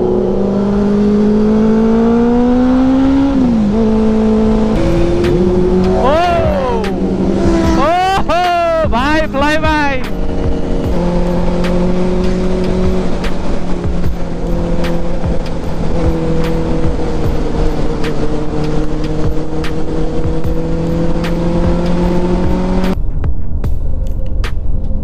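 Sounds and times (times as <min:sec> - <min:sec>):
motorcycle engine cruising: 0:00.0 - 0:25.0
wind rushing over microphone: 0:03.0 - 0:08.0.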